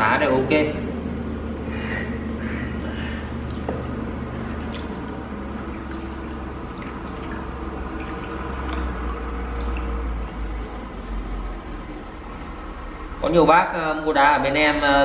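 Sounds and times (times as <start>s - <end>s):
water sloshing in plastic basin: 3.3s - 11.7s
water dripping: 3.3s - 12.6s.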